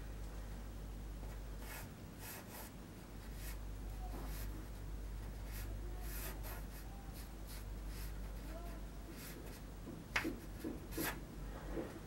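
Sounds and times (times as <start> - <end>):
steady low hum: 0.0 - 12.0
pencil scratching on paper: 1.6 - 3.6, 5.4 - 9.6, 10.6 - 11.2.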